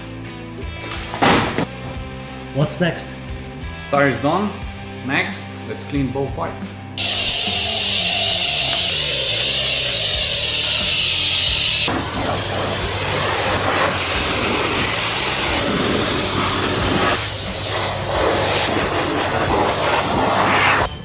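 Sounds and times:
pressure washer spraying water: 7.0 - 20.9.

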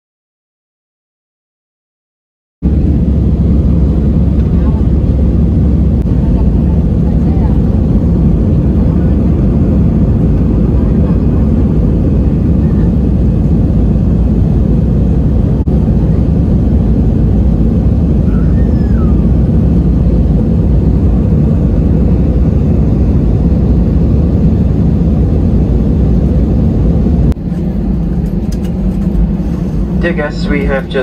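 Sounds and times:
jet engines rumbling: 2.6 - 31.0
rushing air: 7.6 - 31.0.

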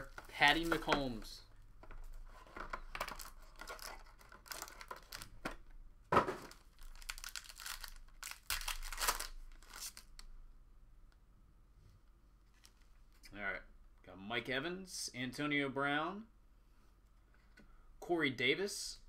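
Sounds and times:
foil pack tearing and crinkling: 6.7 - 10.1.

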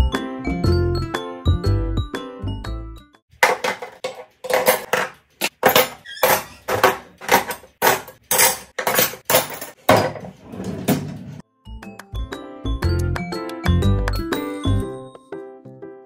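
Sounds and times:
cutlery clinking into plastic tray: 3.4 - 10.4
drawer pushed shut: 9.9 - 11.4.

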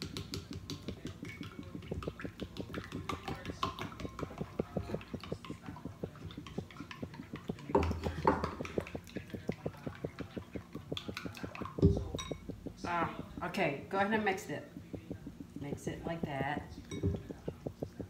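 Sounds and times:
whisk clicking against bowl: 0.0 - 12.5.

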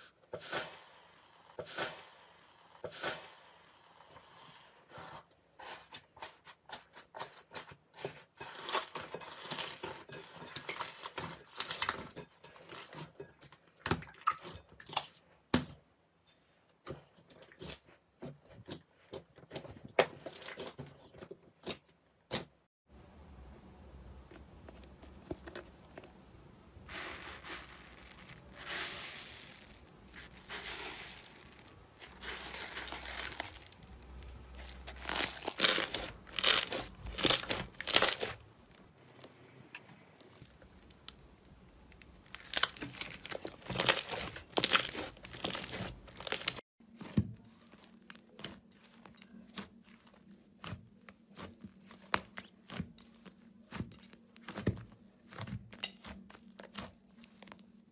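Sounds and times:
slime squishing and popping: 31.4 - 39.3, 42.0 - 48.9.

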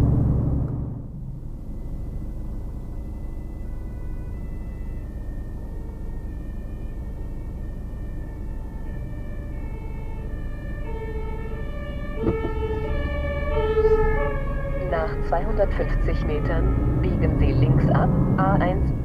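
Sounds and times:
two-tone siren: 1.6 - 19.0
diesel truck engine idling: 10.2 - 18.8
knock: 12.2 - 12.6.

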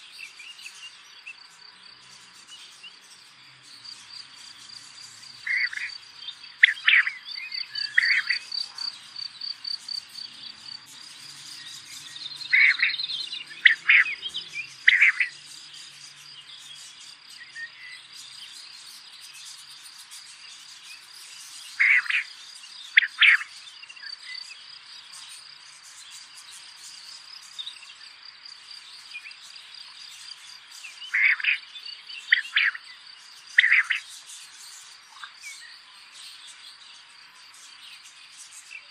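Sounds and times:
insects trilling: 0.0 - 38.9
short loud chirping calls: 11.4 - 15.4, 33.6 - 34.1.

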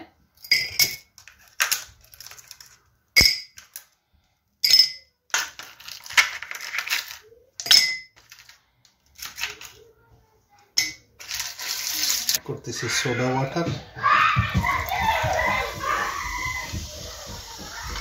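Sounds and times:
ice cubes rattling: 0.5 - 2.8, 5.3 - 9.8, 11.2 - 12.4
ice cubes clinking in glass: 4.6 - 8.6, 10.8 - 12.4.

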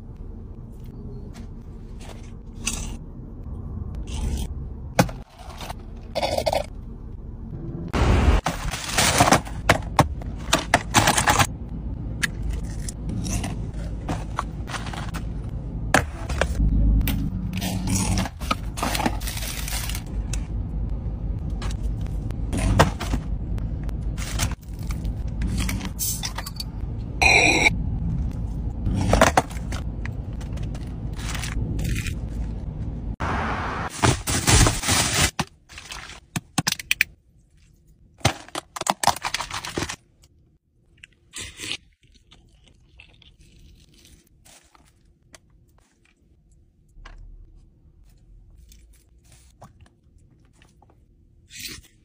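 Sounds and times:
food wrappers crinkling: 18.6 - 20.2, 38.5 - 40.1.

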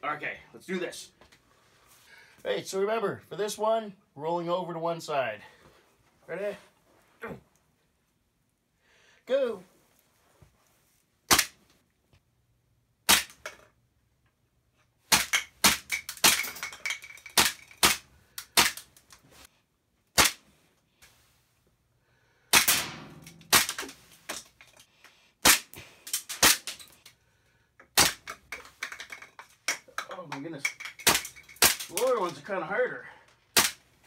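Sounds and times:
pellets hitting plastic targets: 13.0 - 13.7, 15.0 - 19.2, 22.6 - 24.8, 25.4 - 27.0, 27.9 - 32.5, 33.5 - 33.9
airsoft pistol shots: 13.1 - 13.4, 20.2 - 20.4, 22.5 - 24.0.

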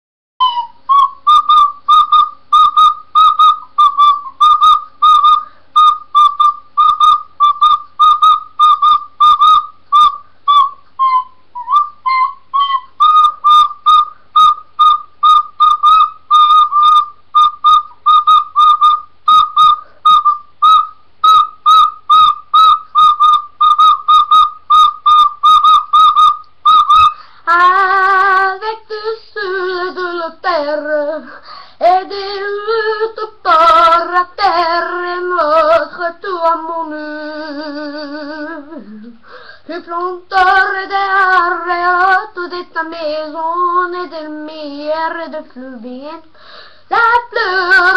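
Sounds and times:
recorder playing short notes: 0.4 - 28.4
child singing: 27.5 - 46.3, 46.9 - 47.9.

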